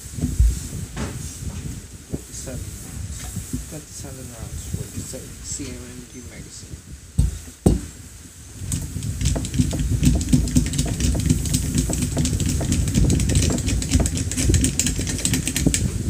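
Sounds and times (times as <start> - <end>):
sharp clicks and rattling: 8.7 - 16.0.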